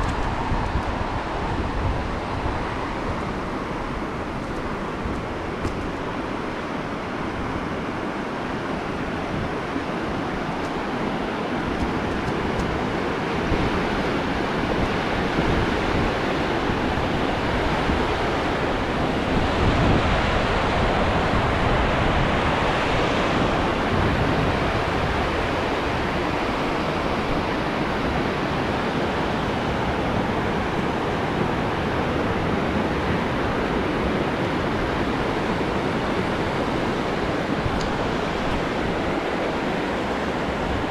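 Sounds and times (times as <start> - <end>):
river rushing over rapids: 0.0 - 40.9.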